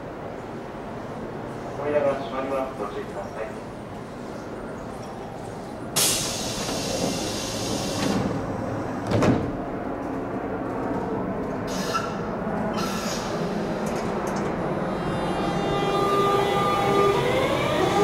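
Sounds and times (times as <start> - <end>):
train door hiss: 6.0 - 8.4, 11.7 - 12.2, 12.8 - 14.0
train doors thudding shut: 6.0 - 9.7.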